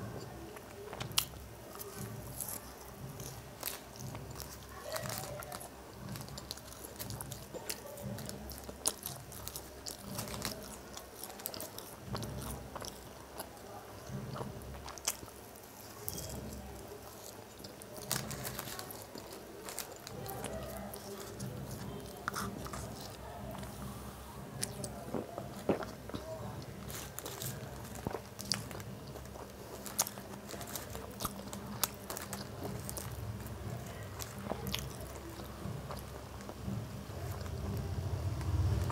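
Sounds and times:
person chewing crunchy fries: 0.0 - 38.9.

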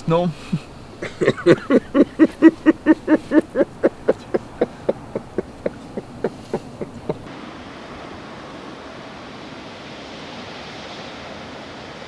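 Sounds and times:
man laughing: 1.0 - 7.3.

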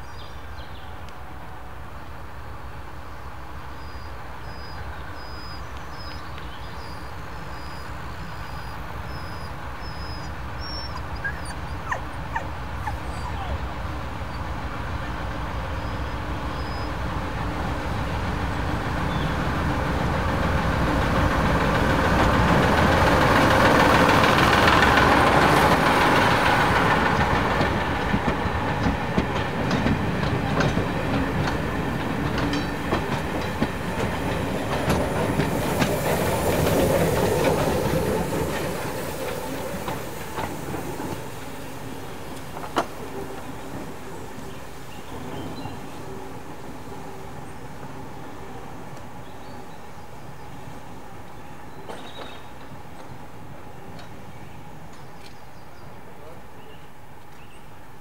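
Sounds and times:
diesel locomotive passing: 0.0 - 58.0
train wheels clacking over rail joints: 21.3 - 44.0.

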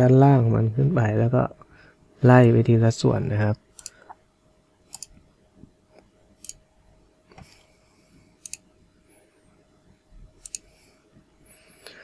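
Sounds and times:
faint steady hum: 0.0 - 12.0
computer mouse clicking: 3.8 - 4.2, 4.9 - 5.2, 6.0 - 6.6, 8.4 - 8.7, 10.4 - 10.8.

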